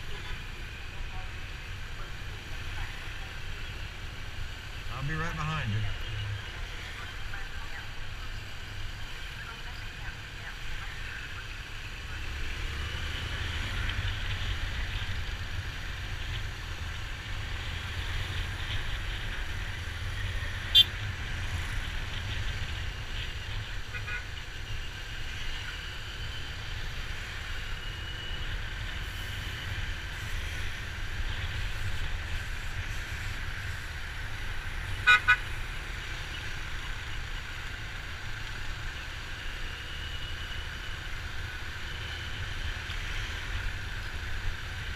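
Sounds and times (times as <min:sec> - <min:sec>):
road traffic rumble: 0:00.0 - 0:44.9
vehicle horns tooting: 0:20.7 - 0:20.9, 0:35.0 - 0:35.6.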